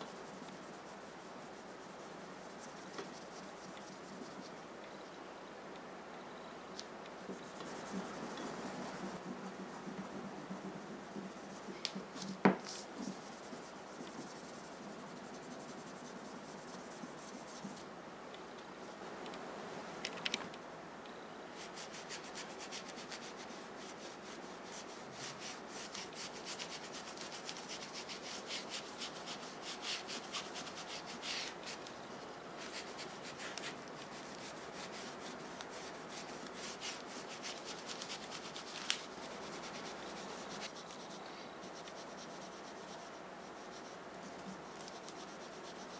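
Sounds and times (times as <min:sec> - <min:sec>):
cloth rubbing on knife blade: 0:21.6 - 0:32.0, 0:32.6 - 0:45.9.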